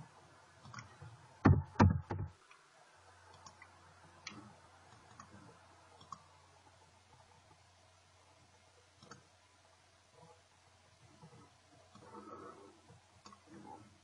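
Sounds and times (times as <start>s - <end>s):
faint mouse clicks: 0.6s - 1.1s, 3.3s - 6.3s, 9.0s - 9.3s, 11.1s - 13.7s
loud knocks: 1.4s - 2.3s.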